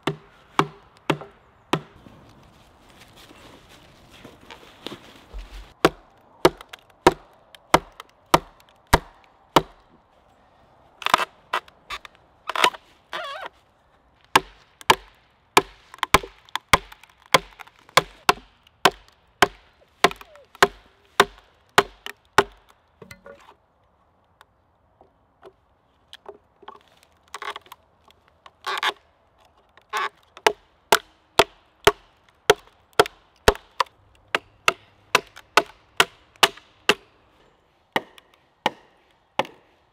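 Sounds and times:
hatchet striking a log: 0.0s - 2.0s, 5.8s - 9.8s, 14.3s - 23.4s, 30.4s - 37.1s, 38.0s - 39.7s.

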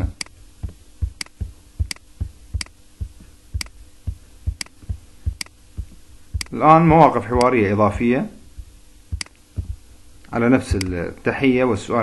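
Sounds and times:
scroll wheel ticking: 0.2s - 7.6s
computer mouse clicking: 1.2s - 2.8s, 4.6s - 4.8s.

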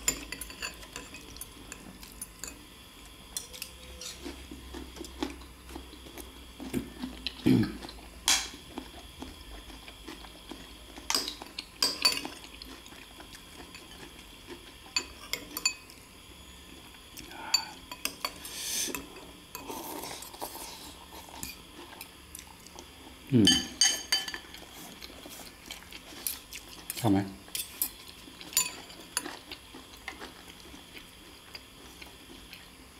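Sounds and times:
cutlery clinking on ceramic bowls: 0.0s - 2.6s, 11.1s - 12.4s, 14.9s - 15.9s, 23.5s - 24.6s, 27.5s - 29.4s.

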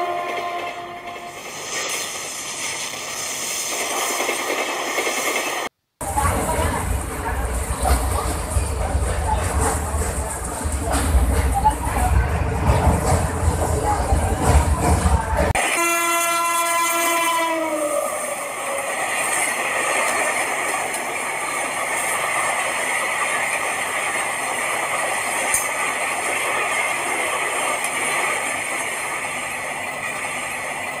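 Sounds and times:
train horn blast: 0.0s - 1.3s, 15.6s - 18.4s
train rushing at speed: 0.0s - 31.0s.

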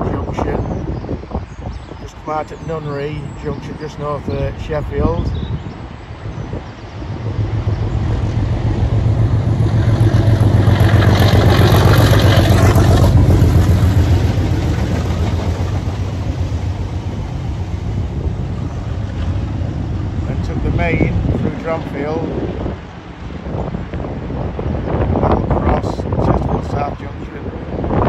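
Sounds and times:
coaches rolling on rails: 1.5s - 28.0s
diesel locomotive engine thrum: 6.1s - 22.9s.

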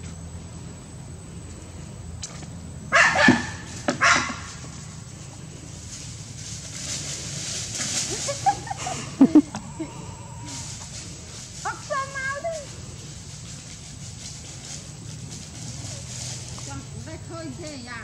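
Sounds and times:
small dog barking: 2.9s - 4.5s.

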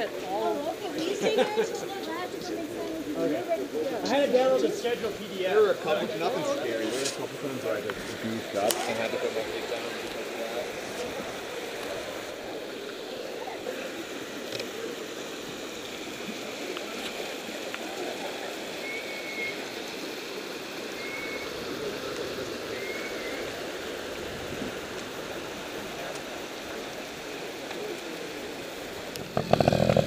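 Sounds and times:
creek rushing over rocks: 0.0s - 30.0s.

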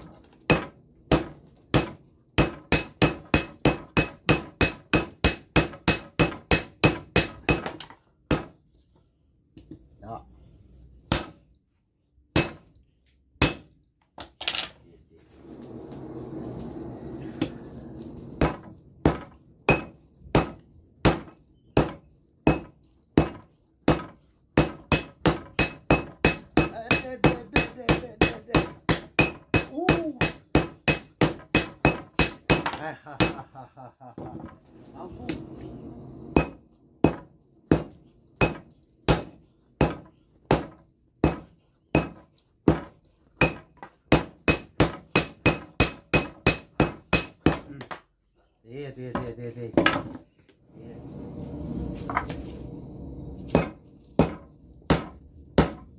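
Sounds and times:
sledgehammer striking steel on anvil: 0.0s - 8.6s, 11.0s - 11.6s, 12.3s - 13.8s, 18.4s - 33.6s, 36.3s - 47.8s, 53.5s - 55.9s.

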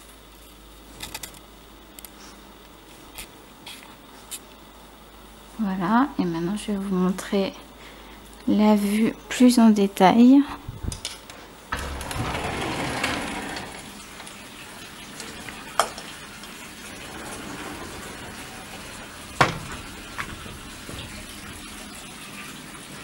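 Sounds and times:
pool water trickling: 11.8s - 23.0s.

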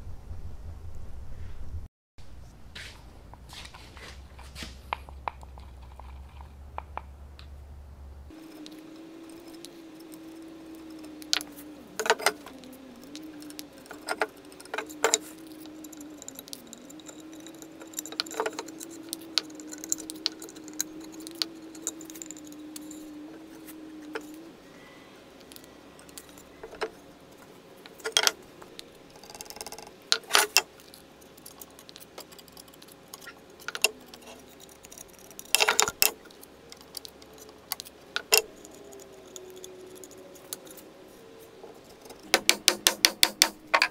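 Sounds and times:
steady low hum: 0.0s - 43.9s.

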